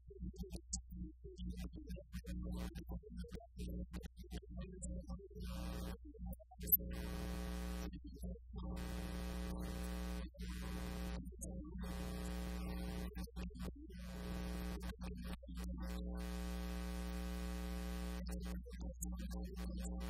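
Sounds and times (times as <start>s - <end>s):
electrical mains buzz: 5.4s - 6.0s, 6.6s - 8.0s, 8.6s - 20.0s.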